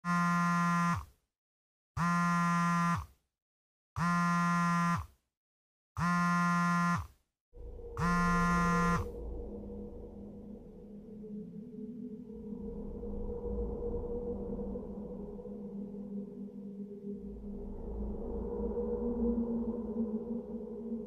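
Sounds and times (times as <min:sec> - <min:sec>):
harsh buzzing tone: 0:00.0 - 0:01.1, 0:02.0 - 0:03.1, 0:04.0 - 0:05.1, 0:06.0 - 0:09.2
low ambient drone with hum: 0:07.6 - 0:21.0.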